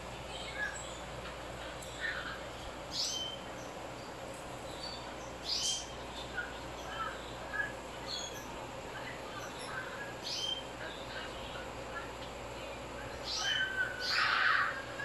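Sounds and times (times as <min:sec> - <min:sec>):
steady low hum: 0:00.0 - 0:15.0
bird chirping: 0:02.9 - 0:04.1, 0:04.7 - 0:08.5.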